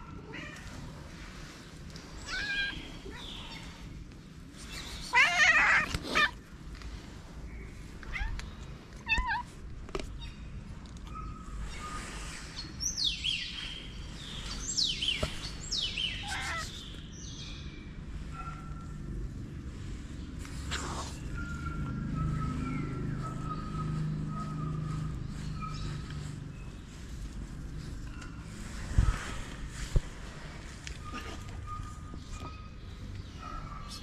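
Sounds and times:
cats meowing: 2.2 - 3.8, 5.0 - 6.5, 7.9 - 9.7, 15.2 - 16.9.

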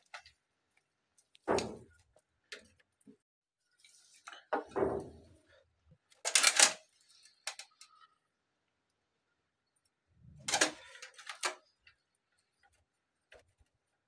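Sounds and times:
plastic part clattering: 6.2 - 7.9, 10.4 - 11.7.

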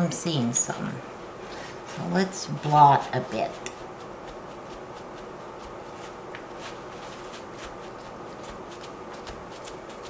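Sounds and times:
paper towel rustling: 2.6 - 10.0.

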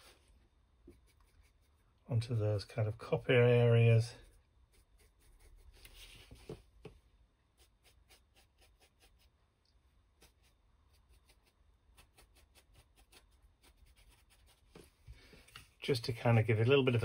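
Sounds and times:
paintbrush scratching: 0.8 - 2.0, 4.2 - 6.6, 7.5 - 9.4, 10.1 - 15.0.

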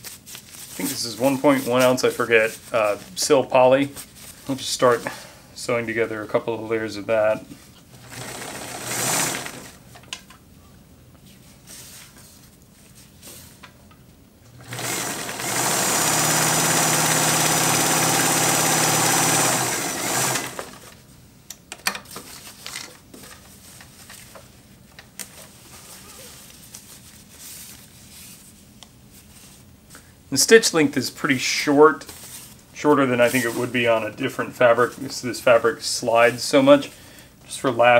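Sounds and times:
fabric rustling: 0.0 - 3.2, 23.5 - 29.8
sewing machine running: 8.0 - 9.8, 14.6 - 21.0.

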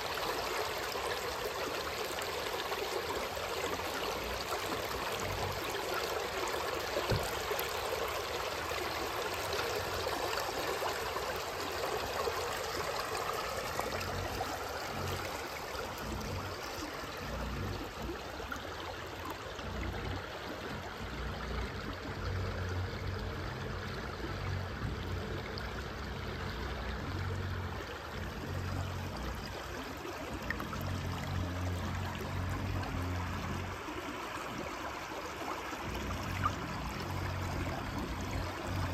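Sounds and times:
river water splashing over weir: 0.0 - 38.9
low rumbles: 35.8 - 38.9.

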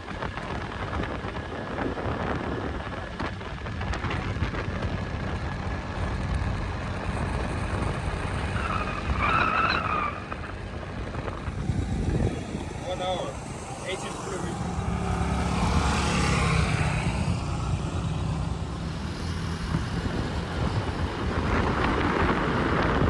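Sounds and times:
road noise: 0.0 - 23.0
motorbike engine rumble: 10.2 - 23.0.

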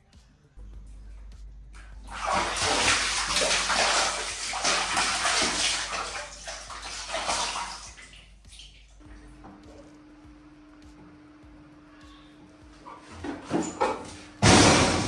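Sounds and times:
water splashing in a basin: 1.8 - 9.1.

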